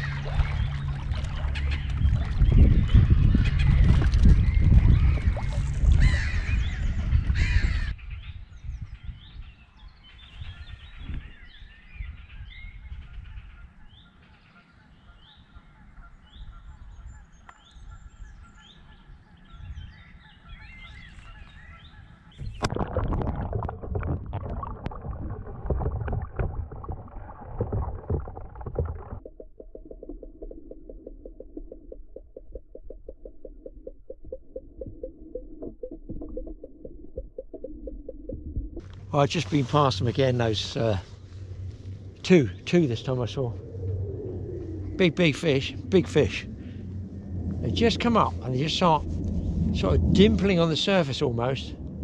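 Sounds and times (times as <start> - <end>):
rushing noise: 40.3 - 52.0.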